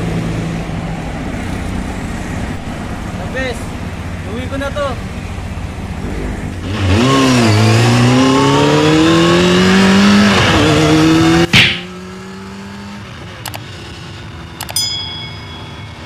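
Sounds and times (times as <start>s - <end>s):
motorcycle engine revving: 3.6s - 16.0s
single click: 13.4s - 13.6s.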